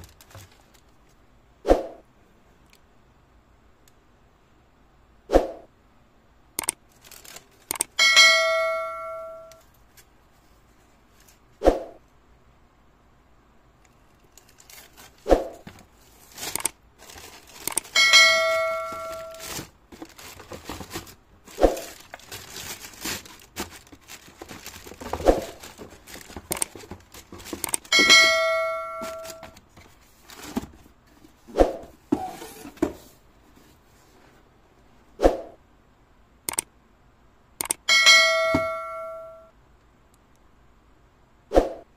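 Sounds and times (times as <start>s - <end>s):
tissue paper and cardboard rustling: 0.0s - 0.9s, 14.2s - 34.5s
bell-like ding: 8.0s - 9.6s, 37.9s - 39.5s.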